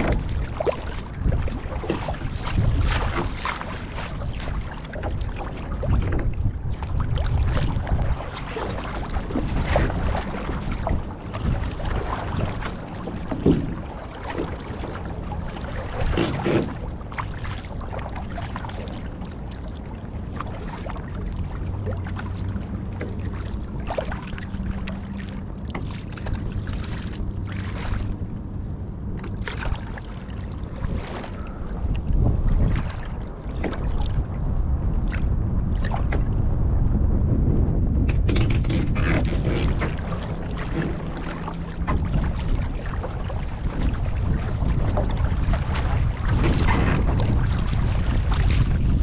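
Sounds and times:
paddle splashing into water: 0:00.0 - 0:19.0, 0:21.9 - 0:28.2, 0:29.2 - 0:31.4, 0:38.2 - 0:49.0
rush of water: 0:00.0 - 0:37.2, 0:38.0 - 0:49.0
wind: 0:00.0 - 0:49.0.

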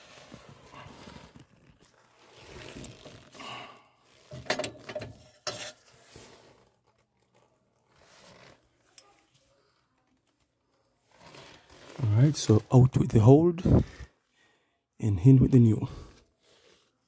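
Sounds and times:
gloved hand rustling: 0:00.0 - 0:04.4.

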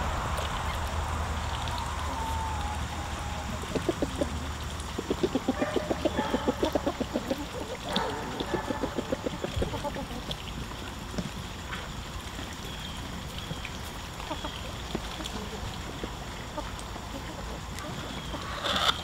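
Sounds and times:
low rumble: 0:00.0 - 0:05.6
hens clucking: 0:00.0 - 0:10.8, 0:13.8 - 0:19.0.

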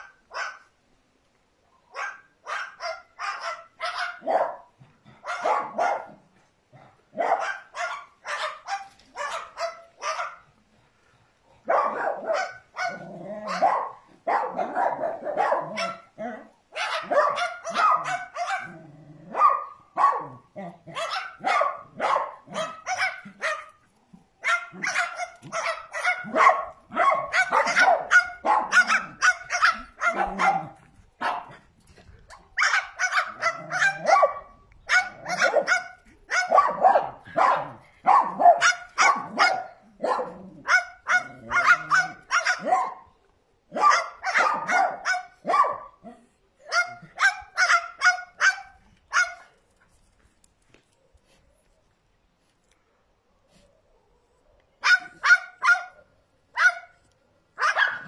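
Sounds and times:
small dogs yapping: 0:01.9 - 0:06.2, 0:07.1 - 0:10.5, 0:11.6 - 0:31.6, 0:32.3 - 0:43.0, 0:43.7 - 0:49.6, 0:54.8 - 0:56.0, 0:56.6 - 0:57.0, 0:57.6 - 0:58.0.

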